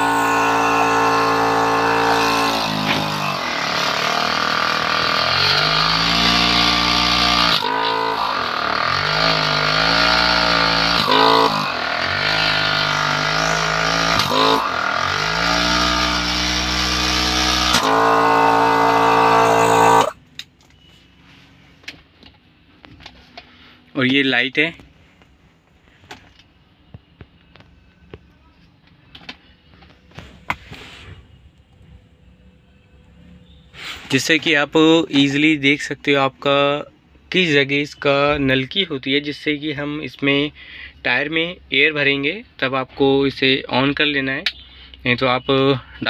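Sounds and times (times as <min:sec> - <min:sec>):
portable air compressor running: 0:00.0 - 0:20.2.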